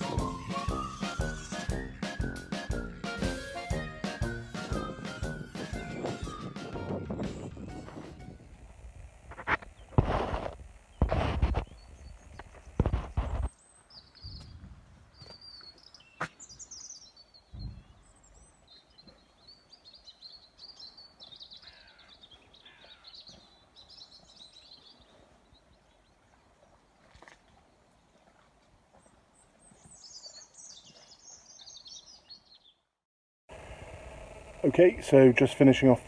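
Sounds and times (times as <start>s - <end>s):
birds chirping and twittering: 0.0s - 10.1s, 10.7s - 26.9s, 28.9s - 32.9s
low thump: 17.5s - 17.9s.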